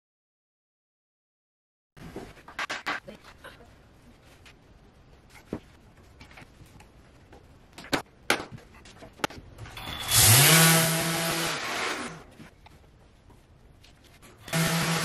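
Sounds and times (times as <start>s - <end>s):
power tool motor whine: 9.8s - 12.2s, 14.4s - 15.0s.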